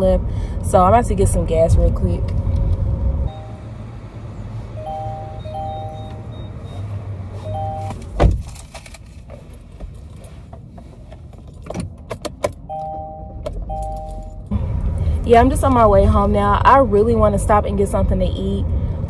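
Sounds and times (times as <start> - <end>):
low steady hum: 0.0 - 11.7, 12.7 - 19.0
two-note electronic tone: 3.3 - 4.0, 4.8 - 8.0, 12.7 - 14.5
car door shutting: 4.9 - 14.6.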